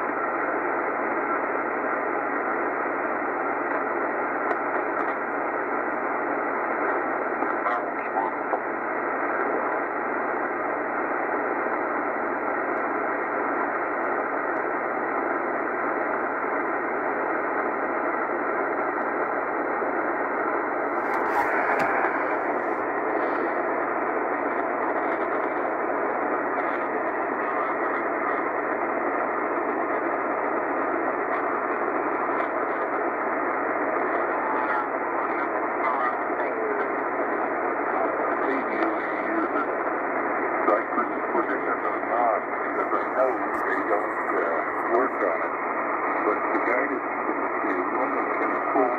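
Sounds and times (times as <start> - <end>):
radio static: 0.0 - 48.9.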